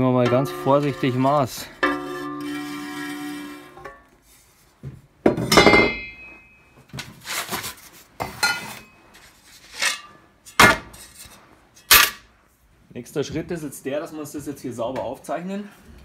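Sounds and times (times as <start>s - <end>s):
metallic clank with ring: 5.5s - 6.6s.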